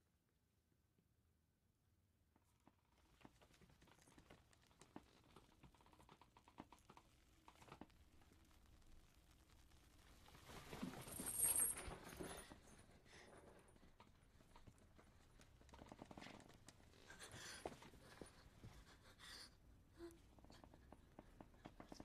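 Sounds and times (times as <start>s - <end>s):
faint clicks and taps: 2.5s - 10.8s, 20.1s - 22.0s
rustling: 2.9s - 18.9s.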